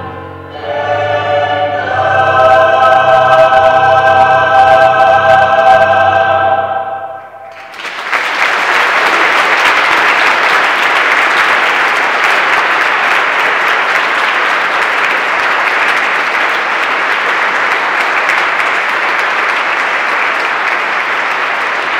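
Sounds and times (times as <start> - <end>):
audience applauding: 7.4 - 21.9.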